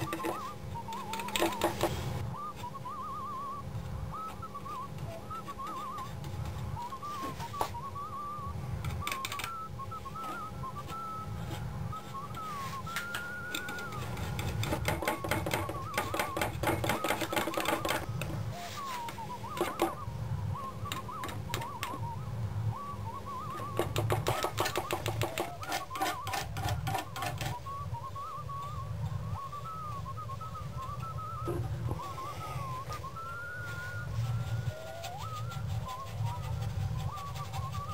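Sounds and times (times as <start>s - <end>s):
low steady hum: 0.0s - 37.9s
whistled tune: 0.0s - 37.9s
palette knife tapping paint: 14.4s - 18.1s.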